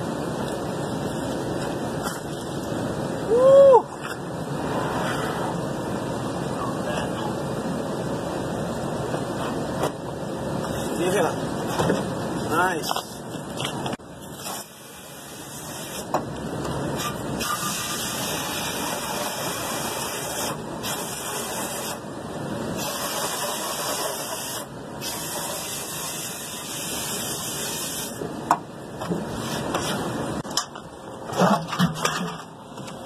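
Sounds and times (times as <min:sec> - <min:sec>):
hose spraying water: 0:14.3 - 0:16.1, 0:17.4 - 0:22.0, 0:22.8 - 0:28.2.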